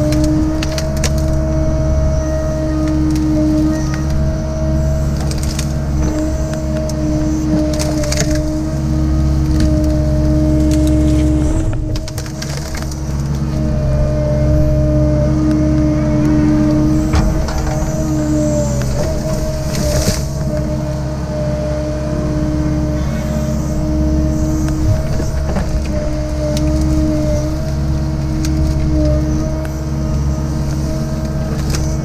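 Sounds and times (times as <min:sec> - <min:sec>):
brush cracking: 0:00.0 - 0:01.5, 0:02.8 - 0:08.7, 0:09.4 - 0:13.7, 0:15.4 - 0:21.1, 0:24.6 - 0:32.0
diesel engine under load: 0:00.0 - 0:32.0
hydraulic whine: 0:00.0 - 0:32.0.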